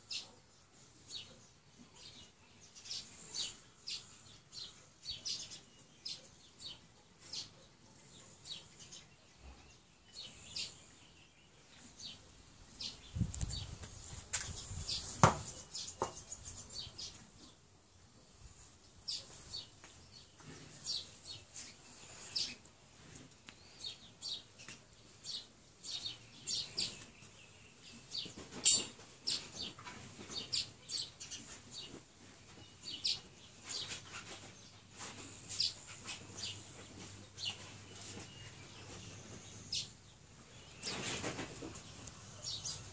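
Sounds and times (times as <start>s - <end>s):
birds chirping: 0.0s - 18.0s, 18.8s - 42.9s.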